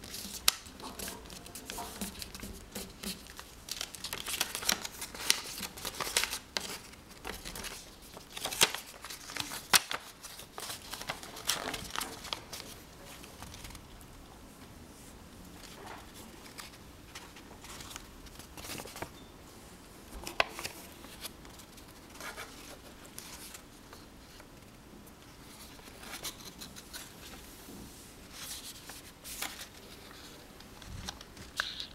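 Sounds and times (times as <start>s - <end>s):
paper rustling and creasing: 0.0s - 13.9s, 15.6s - 19.1s, 20.1s - 24.7s, 25.4s - 27.6s, 28.2s - 31.9s.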